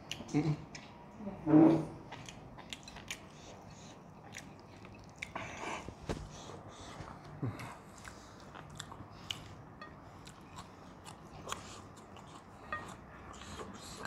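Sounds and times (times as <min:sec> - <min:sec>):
person chewing food: 0:02.0 - 0:14.0.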